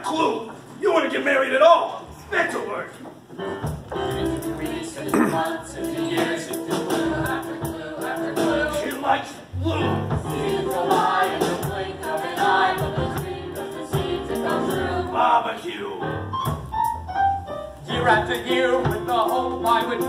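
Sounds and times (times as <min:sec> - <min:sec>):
piano accompaniment: 0:03.4 - 0:15.4, 0:16.0 - 0:20.0
voices singing together: 0:04.0 - 0:16.0, 0:17.9 - 0:20.0.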